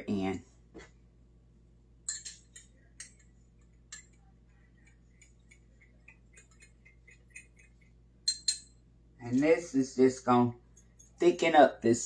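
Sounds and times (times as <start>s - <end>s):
utensil clicking against pot: 2.1s - 8.7s.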